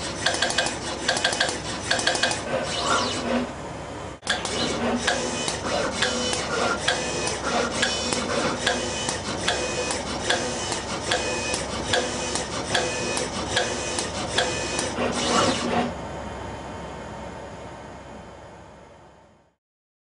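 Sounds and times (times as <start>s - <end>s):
sharp machine clicks: 0.0s - 3.4s, 4.2s - 15.6s
short motor whines: 0.3s - 3.5s, 4.3s - 15.9s.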